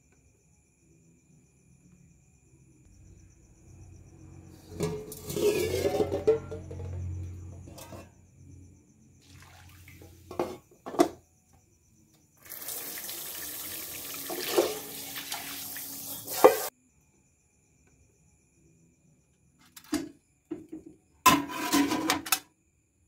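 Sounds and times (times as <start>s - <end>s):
water pouring from a pot: 9.2s - 10.4s, 12.4s - 16.7s
cookware knocks: 10.3s - 11.2s.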